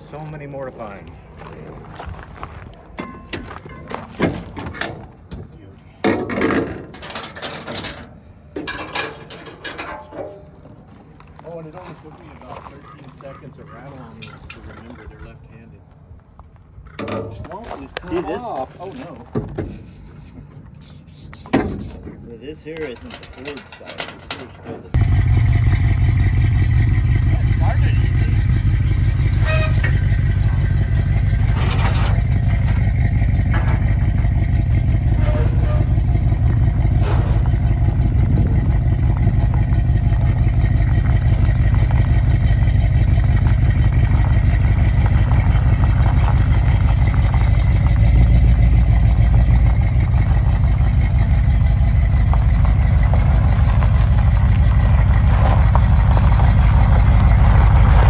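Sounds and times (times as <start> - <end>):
metal knocks: 3.0 - 10.5, 29.0 - 38.3
car engine idling: 24.9 - 58.0.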